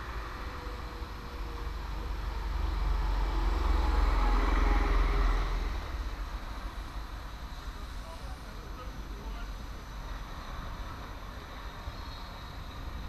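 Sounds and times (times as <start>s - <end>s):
motor vehicle passing: 0.0s - 7.1s.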